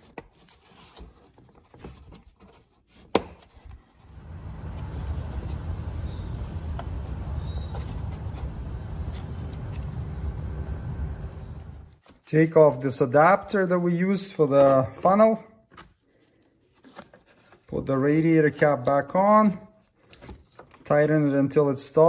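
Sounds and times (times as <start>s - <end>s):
steady low rumble: 4.1s - 12.0s.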